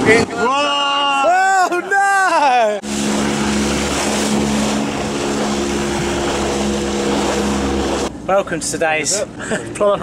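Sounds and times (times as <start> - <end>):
motorboat engine running: 2.8 - 8.1
wind and water rushing: 2.8 - 8.3.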